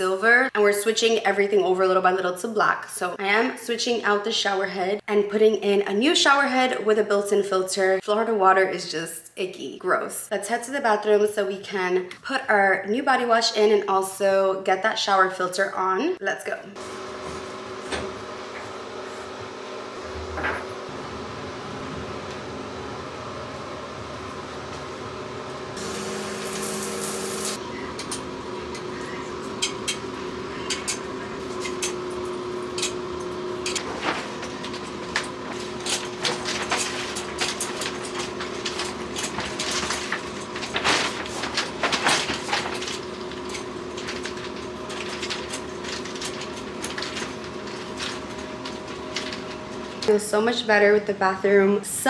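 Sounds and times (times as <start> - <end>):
steady hum: 16.8 - 52.0.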